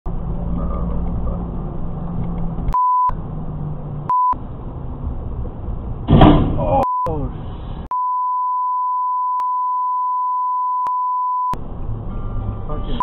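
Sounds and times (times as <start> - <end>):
car engine and road drone: 0.0 - 7.9, 11.5 - 13.0
censor bleep: 7.9 - 11.6.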